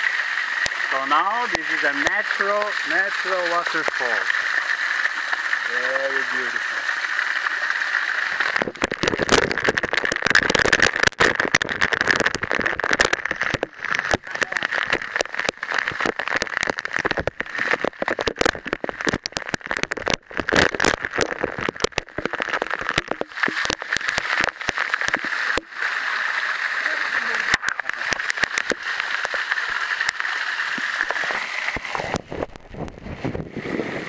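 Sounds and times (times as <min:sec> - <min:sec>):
water splattering on microphone: 0:00.0 - 0:34.0
waterfall rushing: 0:00.0 - 0:34.0.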